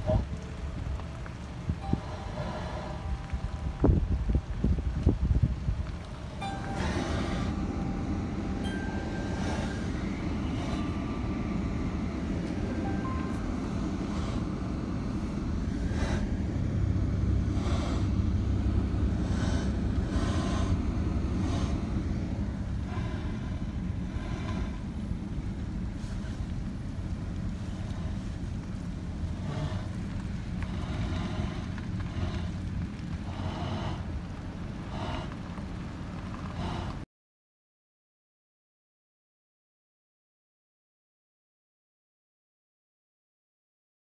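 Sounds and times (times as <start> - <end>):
car engine and tyres rumbling: 0.0 - 37.1
faint car radio music: 6.3 - 15.4.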